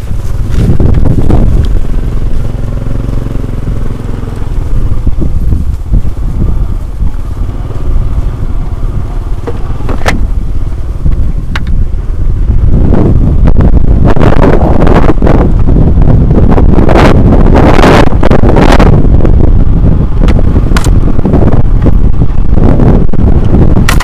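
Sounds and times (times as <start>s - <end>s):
motorcycle engine running: 0.0s - 24.0s
wind rumble on microphone: 0.0s - 24.0s
sharp clicks: 20.2s - 21.0s.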